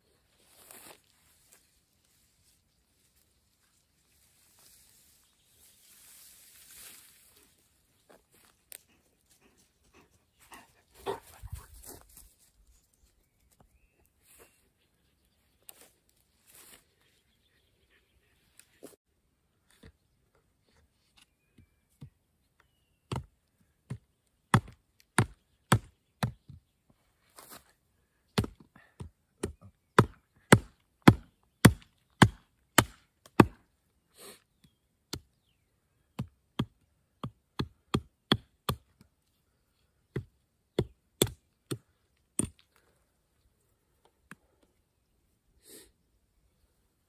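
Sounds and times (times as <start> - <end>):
hatchet chopping wood: 23.1 - 23.3, 23.9 - 26.4, 28.4 - 33.6, 36.1 - 39.0, 40.1 - 41.8, 42.4 - 42.6.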